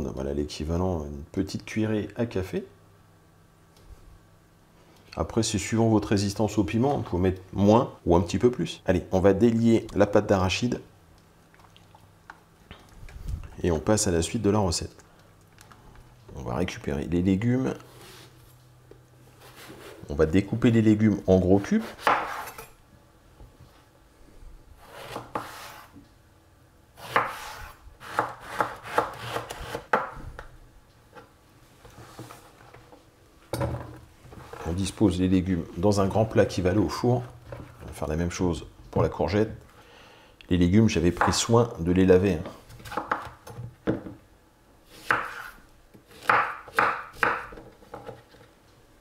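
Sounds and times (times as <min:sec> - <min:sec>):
knife chopping on cutting board: 0:21.8 - 0:22.7, 0:24.8 - 0:25.9, 0:27.0 - 0:30.2, 0:42.8 - 0:43.4, 0:45.0 - 0:48.2.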